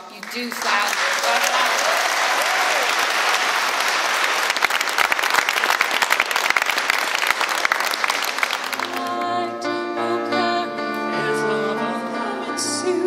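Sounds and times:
large audience applauding: 0.0s - 9.4s
music with held notes: 8.8s - 13.0s.

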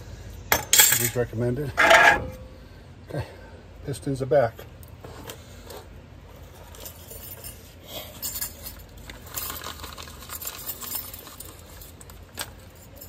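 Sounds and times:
small metal parts clinking: 0.5s - 2.4s, 6.4s - 13.0s.

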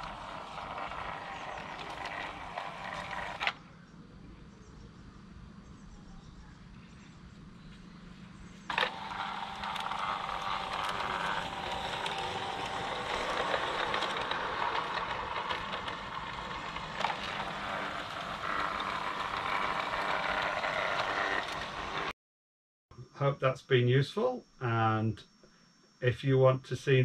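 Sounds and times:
model locomotive running: 0.0s - 3.6s, 8.7s - 22.1s.

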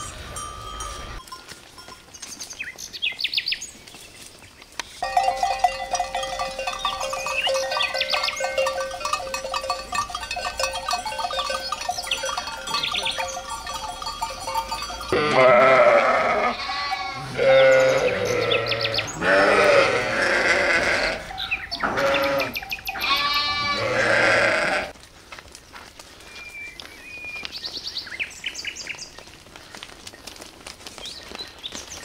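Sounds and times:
farm animals bleating: 5.0s - 25.0s.

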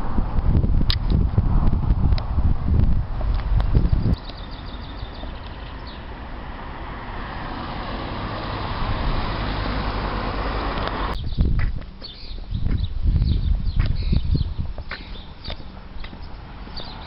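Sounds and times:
car passing: 1.4s - 11.2s, 15.3s - 17.0s.

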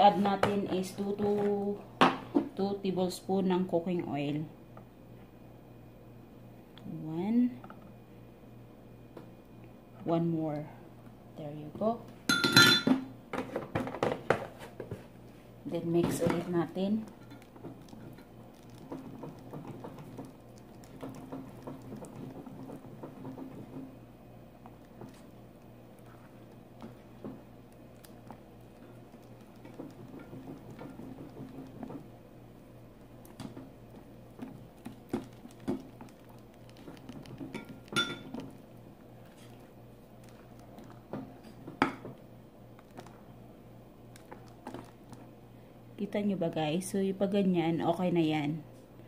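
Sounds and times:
whisk beating batter: 16.1s - 24.0s, 24.6s - 32.3s, 32.9s - 41.4s
whisk tapping glass bowl: 34.8s - 38.5s
whisk clinking against glass bowl: 37.5s - 38.3s.

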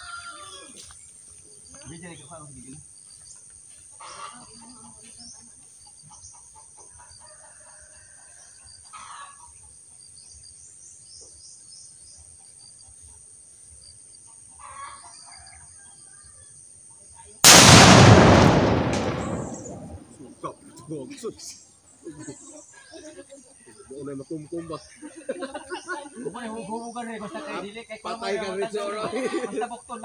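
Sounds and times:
faint roosters crowing: 0.0s - 0.9s, 7.0s - 9.4s.

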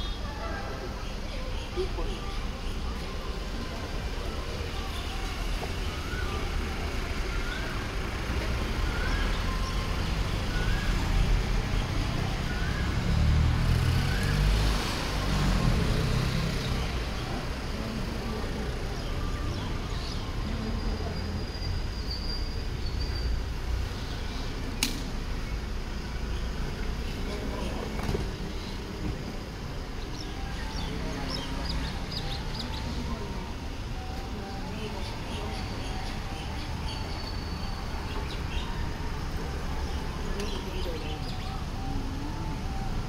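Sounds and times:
road traffic rumble: 0.0s - 43.0s
sharp click: 24.8s - 25.1s.

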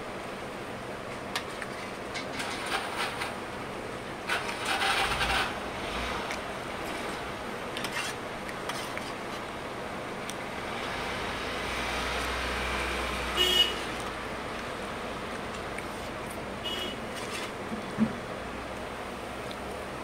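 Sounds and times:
steady background noise: 0.0s - 20.0s
spoon scraping a steel plate: 7.8s - 9.2s, 17.1s - 17.6s.

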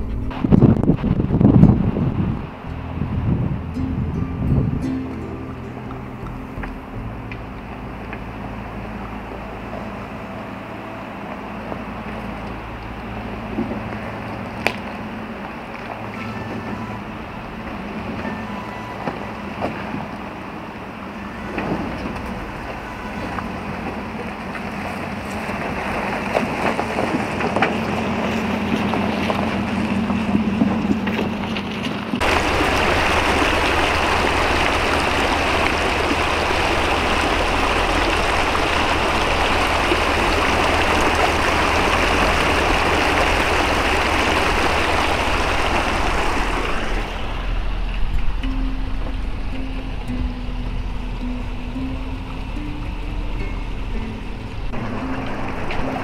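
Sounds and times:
pickup truck engine running: 0.0s - 56.0s
water rushing: 0.0s - 56.0s.

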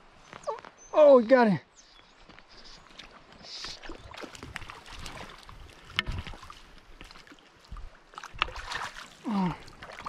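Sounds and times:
water splashing in river: 2.9s - 10.0s.

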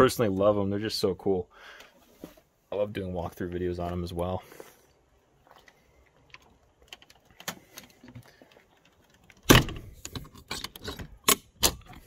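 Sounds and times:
door thump: 9.5s - 9.8s.

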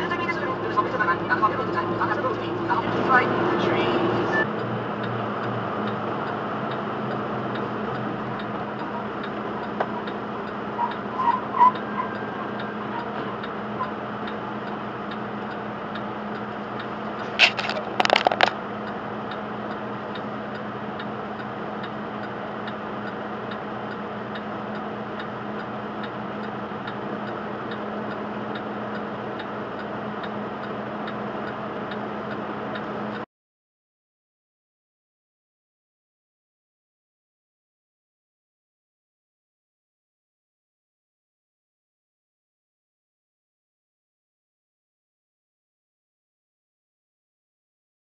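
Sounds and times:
truck engine idling hum: 0.0s - 33.2s
faint regular ticking: 4.5s - 11.1s, 11.7s - 33.2s.

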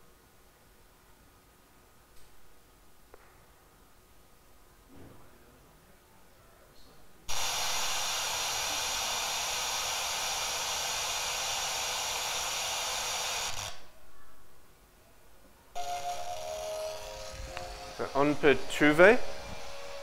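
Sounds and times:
radio static hiss: 7.3s - 13.9s, 15.8s - 20.0s.

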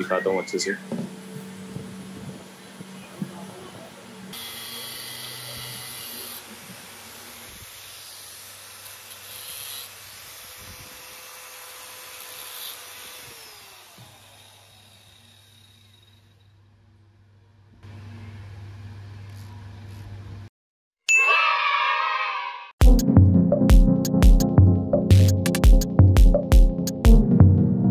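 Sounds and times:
angle grinder whining and spinning down: 4.3s - 16.4s.

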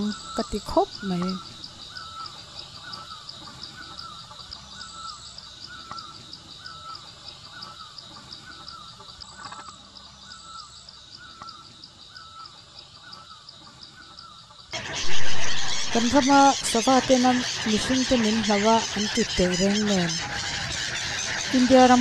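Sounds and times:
bird calling repeated note: 14.8s - 22.0s
fast high ticking: 14.8s - 22.0s.

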